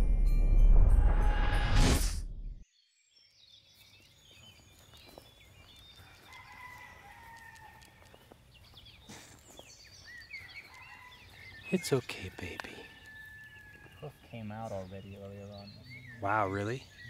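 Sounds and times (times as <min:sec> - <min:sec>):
whoosh: 0:00.0 - 0:02.6
small birds chirping: 0:02.7 - 0:17.0
rooster crowing: 0:06.0 - 0:08.1, 0:10.4 - 0:11.6, 0:12.2 - 0:14.3.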